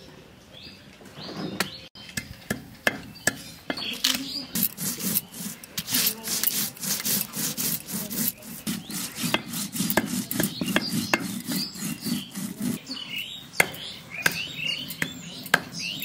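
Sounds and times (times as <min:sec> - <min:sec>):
stone scraping on stone: 0:04.2 - 0:12.8.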